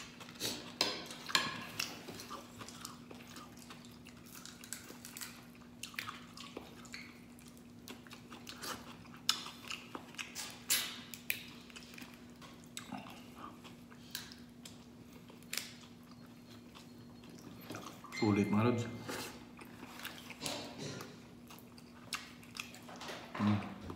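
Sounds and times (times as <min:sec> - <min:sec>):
chewing and sucking: 0:01.7 - 0:18.1, 0:19.1 - 0:20.8.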